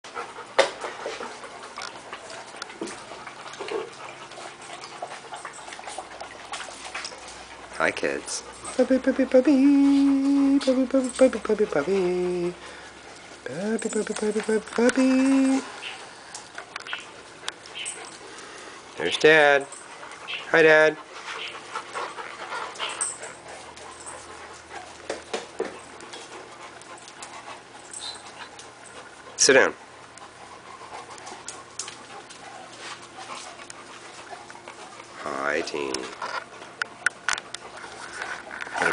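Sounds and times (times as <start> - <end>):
puppies lapping water: 0.1 - 38.9
puppies whimpering: 25.8 - 36.7.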